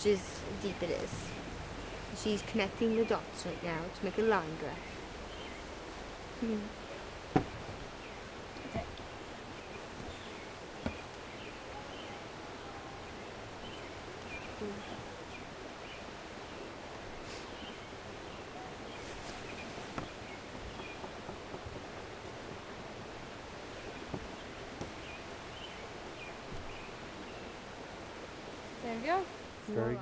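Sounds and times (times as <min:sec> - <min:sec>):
outdoor background noise: 0:00.0 - 0:30.0
soft knocks: 0:07.3 - 0:07.8, 0:10.8 - 0:11.1, 0:19.8 - 0:22.0, 0:24.0 - 0:25.0.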